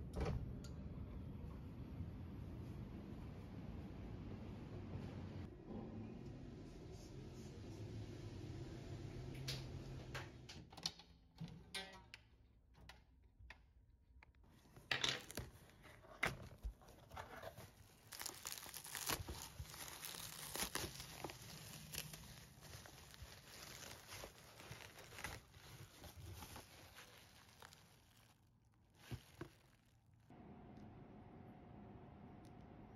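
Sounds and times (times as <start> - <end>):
wrapping material crinkling: 14.6 - 30.3.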